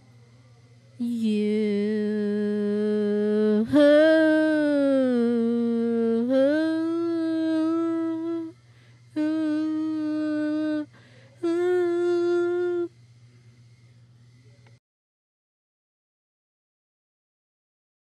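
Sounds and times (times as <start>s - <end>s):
person humming held notes: 1.0s - 12.9s.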